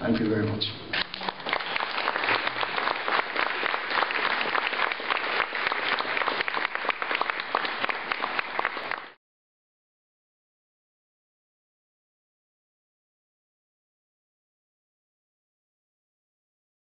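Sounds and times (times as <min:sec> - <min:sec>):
audience applauding: 0:00.9 - 0:09.2.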